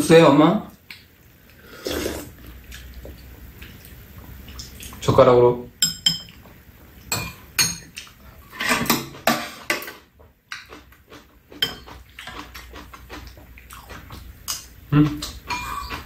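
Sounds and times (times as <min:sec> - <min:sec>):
utensils clinking on bowls: 0:05.8 - 0:06.4, 0:07.1 - 0:10.0, 0:11.6 - 0:12.8, 0:14.5 - 0:16.0.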